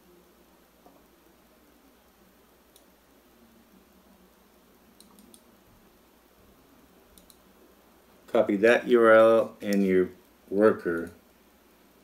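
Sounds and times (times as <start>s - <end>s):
computer mouse clicks: 2.7s - 2.9s, 4.9s - 5.5s, 7.1s - 7.4s.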